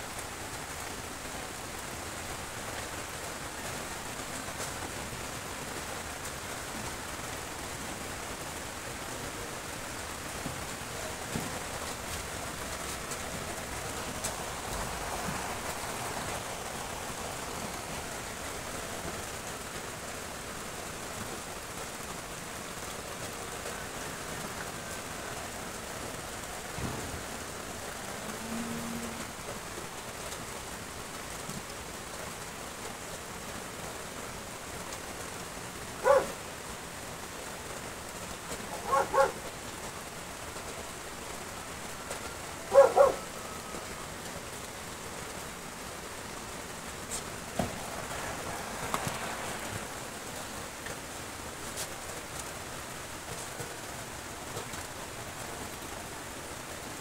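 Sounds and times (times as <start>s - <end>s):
rain hiss: 0.0s - 57.0s
dog barking: 36.0s - 36.4s, 38.7s - 39.4s, 42.7s - 43.3s.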